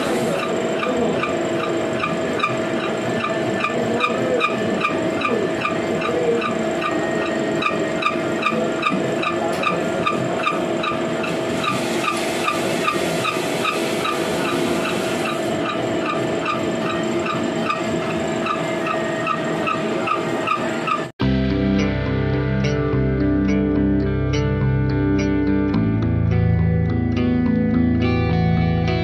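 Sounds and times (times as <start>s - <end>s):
machine ticking: 0.0s - 21.1s
gear-cutting machine humming: 0.0s - 21.2s
guitar music: 21.2s - 29.0s.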